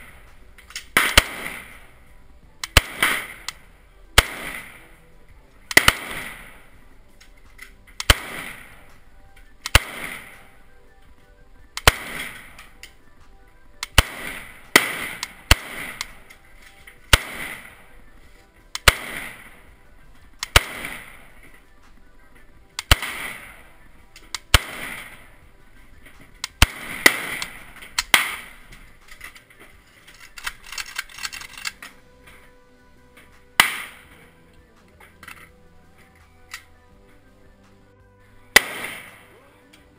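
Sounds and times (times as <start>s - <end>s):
rifle shots with ringing echo: 0.0s - 13.1s, 13.7s - 32.6s, 33.2s - 35.5s, 38.3s - 39.4s
quiet clicks: 27.4s - 37.8s.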